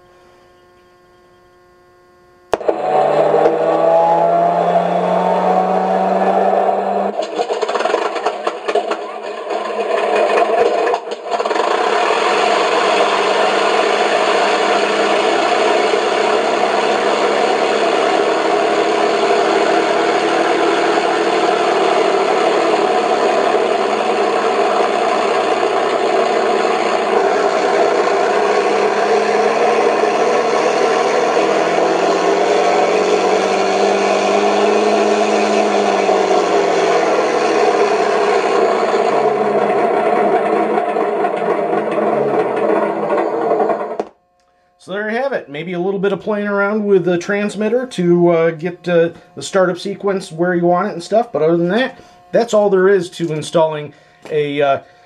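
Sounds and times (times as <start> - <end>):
simulated aircraft engine: 2.5 - 44.1.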